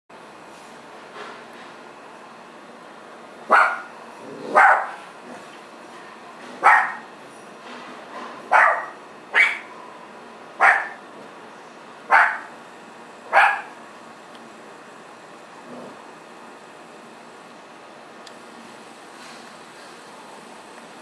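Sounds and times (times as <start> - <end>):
dog barking: 3.5 - 5.0, 6.6 - 7.1, 8.5 - 9.7, 10.6 - 11.0, 12.1 - 12.5, 13.3 - 13.8.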